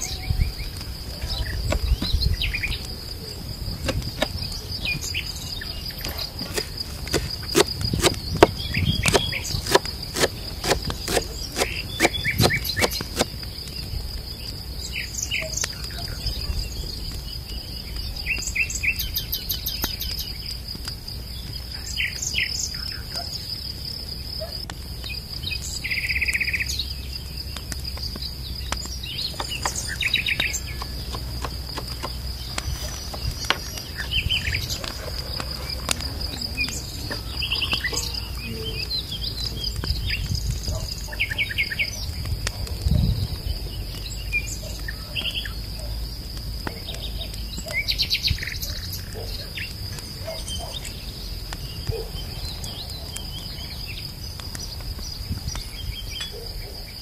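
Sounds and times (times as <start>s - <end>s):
insects trilling: 0.0s - 57.0s.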